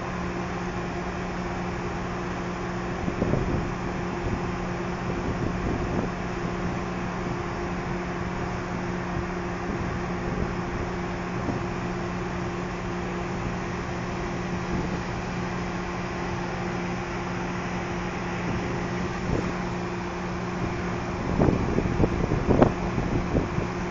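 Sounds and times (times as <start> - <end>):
ship engines droning: 0.0 - 23.9
wind buffeting microphone: 3.0 - 11.8, 14.4 - 15.4, 18.0 - 23.9.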